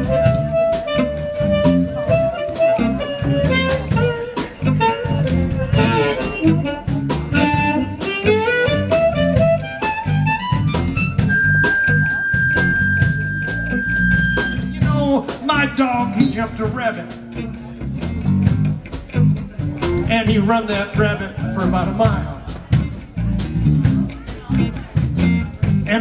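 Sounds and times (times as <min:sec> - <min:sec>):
amplified blues harmonica: 0:00.0 - 0:15.0
drum-led band: 0:00.0 - 0:26.0.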